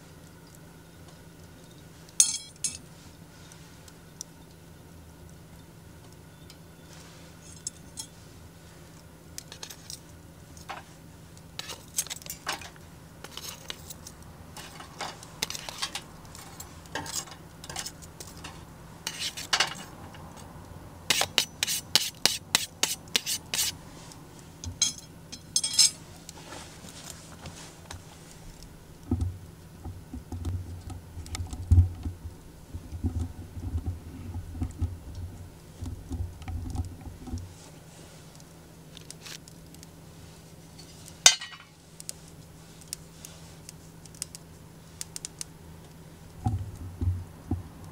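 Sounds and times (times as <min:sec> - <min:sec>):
soft low thuds and rumbles: 0:46.4 - 0:47.8.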